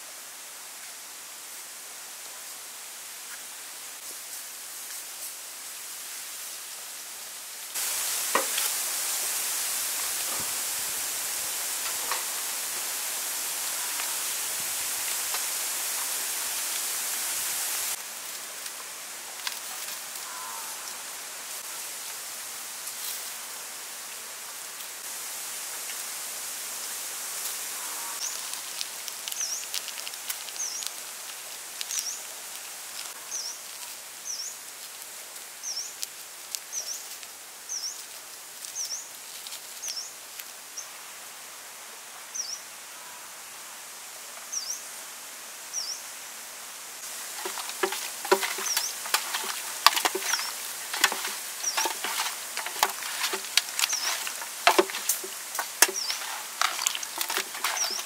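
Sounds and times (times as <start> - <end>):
powder pattering hiss: 3.0 - 41.3, 47.0 - 58.0
wet squelching and slapping: 47.3 - 58.0.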